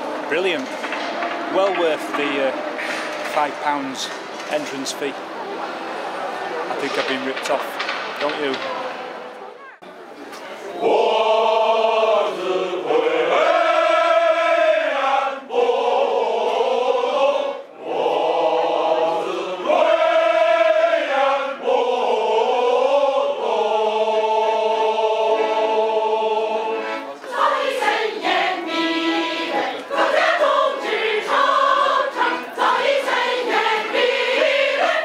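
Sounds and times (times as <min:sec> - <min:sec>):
choir singing: 0:10.6 - 0:35.0.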